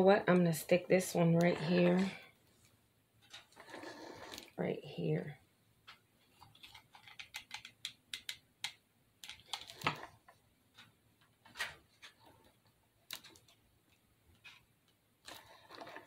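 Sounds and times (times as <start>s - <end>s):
small decorations clicking and tapping: 5.8s - 16.0s.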